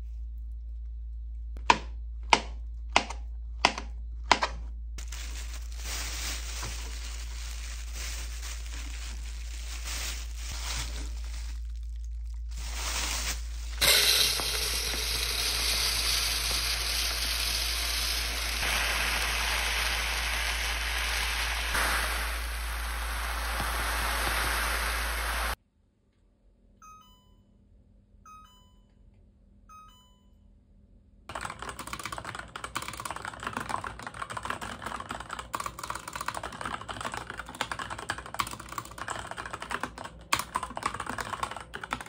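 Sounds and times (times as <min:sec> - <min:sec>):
knife chopping on plastic board: 0:01.6 - 0:04.6
plastic bag crinkling: 0:05.0 - 0:13.8
grains pouring into container: 0:12.6 - 0:25.6.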